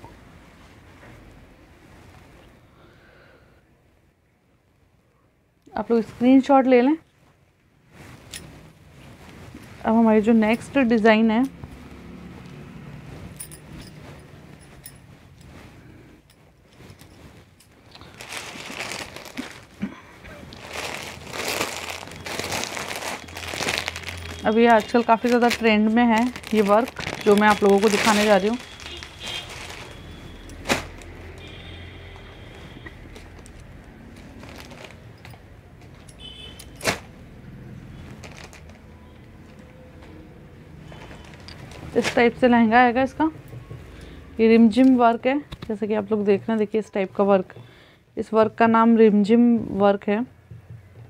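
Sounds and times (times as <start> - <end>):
cloth rustling: 7.2 - 39.6, 40.5 - 44.0
fabric swish: 7.8 - 19.8, 20.5 - 31.4.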